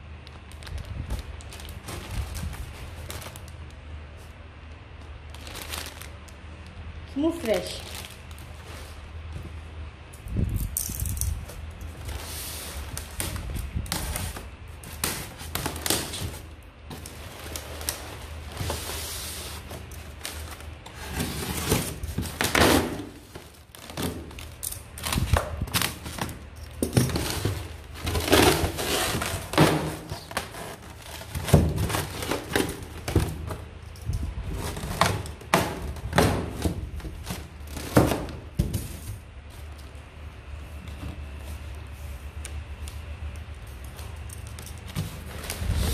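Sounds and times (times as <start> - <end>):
plastic rustling and crinkling: 0.0 - 45.9
foam box rubbing and thunks: 27.0 - 33.5.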